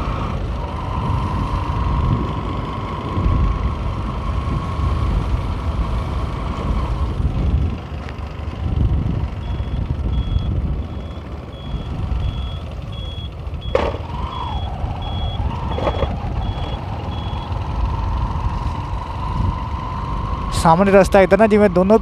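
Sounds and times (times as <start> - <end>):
motorcycle engine rumble: 0.0 - 22.0
wind noise on microphone: 0.6 - 7.9, 8.6 - 12.5.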